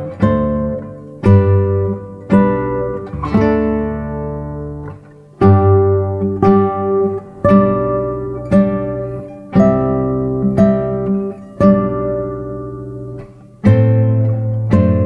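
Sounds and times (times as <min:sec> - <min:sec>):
plucked acoustic guitar chords: 0:00.0 - 0:15.0.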